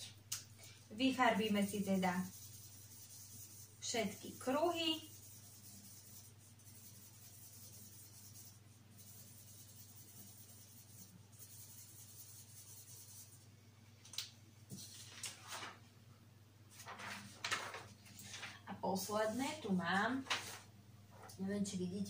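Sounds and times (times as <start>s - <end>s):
pencil scratching on paper: 1.2s - 13.4s
paper sheets rustling: 14.7s - 15.9s, 16.7s - 19.4s, 20.1s - 20.7s.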